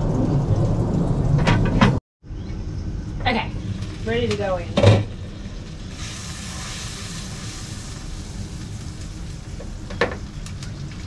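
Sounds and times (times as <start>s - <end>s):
low rumble: 0.0s - 11.0s
sauce sizzling in a frying pan: 5.1s - 11.0s.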